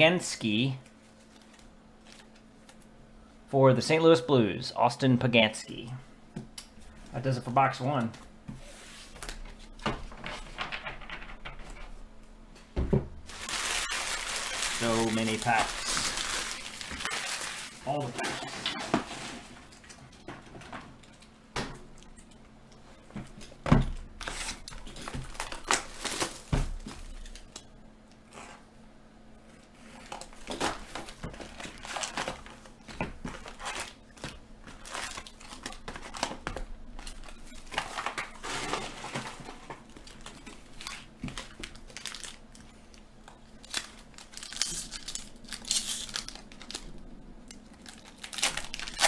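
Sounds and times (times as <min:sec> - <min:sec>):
foil packs rustling: 0:13.2 - 0:20.3, 0:24.2 - 0:27.6, 0:29.8 - 0:46.9, 0:47.7 - 0:49.0
shrink wrap crinkling and tearing: 0:13.3 - 0:18.9, 0:24.2 - 0:27.7, 0:29.8 - 0:32.7, 0:33.3 - 0:36.4, 0:37.0 - 0:49.0.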